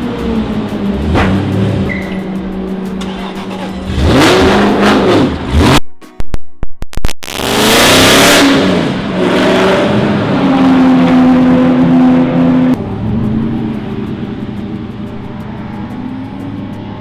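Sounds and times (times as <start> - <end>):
racing car engine accelerating: 0.0 - 5.8, 7.3 - 17.0.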